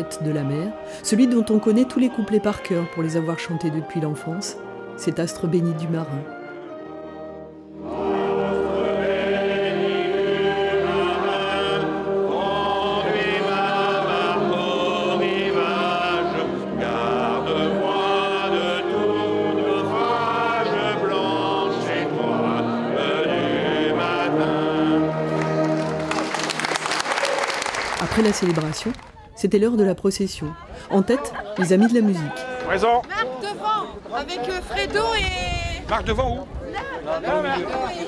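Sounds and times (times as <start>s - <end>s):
wind band playing: 0.0s - 28.8s
congregation singing a hymn: 6.4s - 26.5s.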